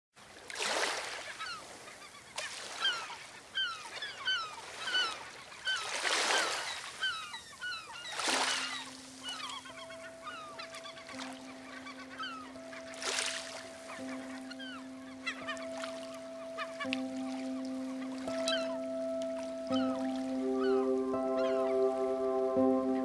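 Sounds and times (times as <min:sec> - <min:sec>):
water birds calling: 0:00.3 - 0:23.0
waves washing: 0:00.3 - 0:23.0
low music notes: 0:09.6 - 0:23.0.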